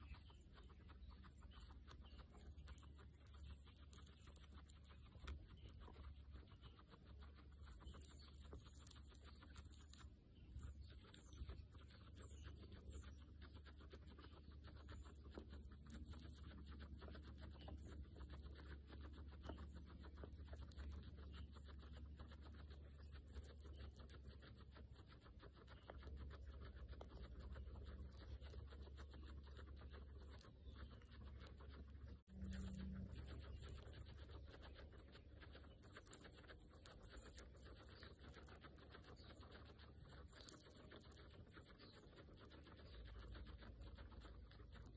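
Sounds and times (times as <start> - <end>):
guinea pigs chewing grass: 0.0 - 44.9
low steady hum: 29.9 - 42.0.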